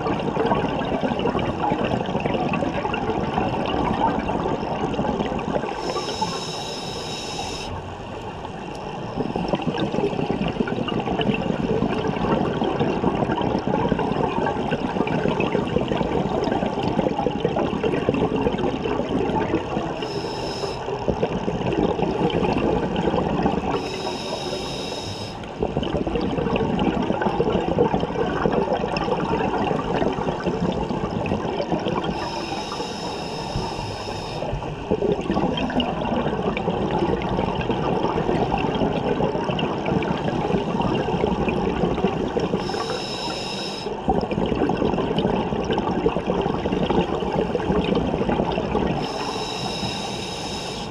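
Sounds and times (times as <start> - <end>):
hissing regulator inhalation: 5.8 - 7.7, 20.0 - 21.0, 23.7 - 25.5, 32.1 - 34.6, 42.5 - 44.0, 49.0 - 50.9
bubbling exhalations underwater: 9.1 - 20.2, 20.8 - 24.5, 25.5 - 32.3, 34.2 - 50.0.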